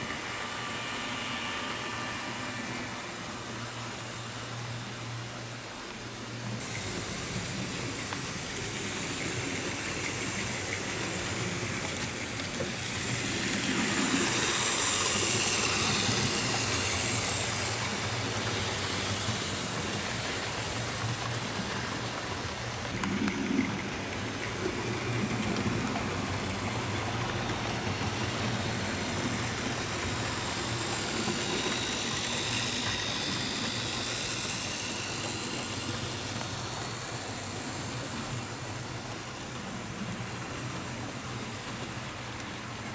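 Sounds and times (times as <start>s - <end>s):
model train rolling on track: 0.0s - 42.9s.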